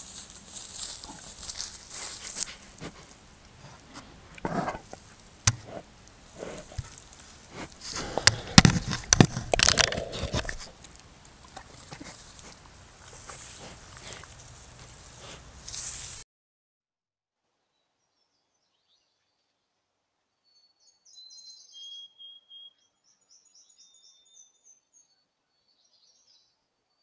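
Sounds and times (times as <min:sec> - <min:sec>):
fur brushing against camera: 0:12.0 - 0:16.2.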